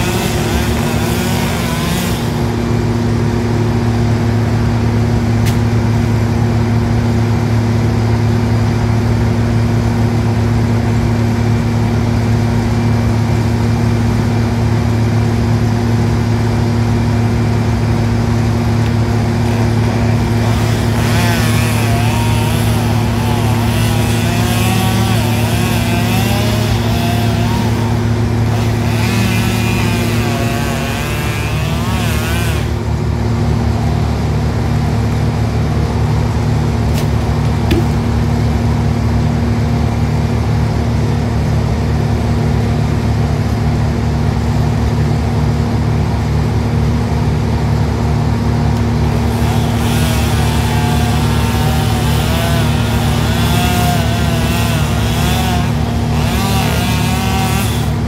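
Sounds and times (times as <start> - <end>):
chainsaw cutting tree trunk: 0.0 - 3.2, 18.3 - 33.0, 48.6 - 58.0
engine drone: 0.0 - 58.0.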